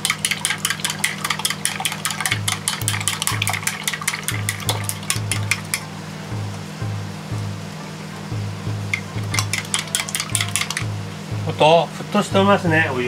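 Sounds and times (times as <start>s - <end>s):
chopsticks clicking on steel bowl: 0.0s - 5.8s, 8.9s - 10.9s.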